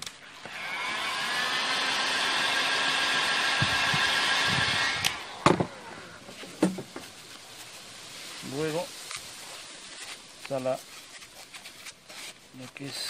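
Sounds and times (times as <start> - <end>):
heat gun blowing air: 0.0 - 6.8.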